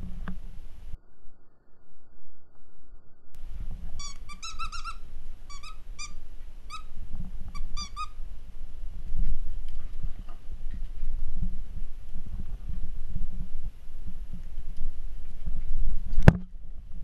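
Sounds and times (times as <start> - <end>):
rustling: 3.4 - 17.0
toy squeaks: 4.0 - 6.9, 7.5 - 8.2.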